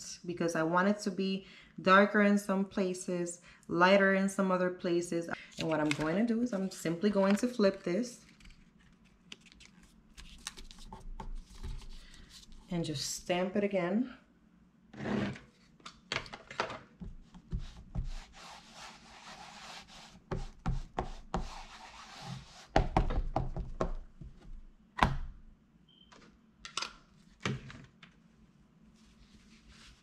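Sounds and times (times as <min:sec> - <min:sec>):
paper rubbing on tabletop: 0:17.5 - 0:22.8, 0:29.0 - 0:30.0.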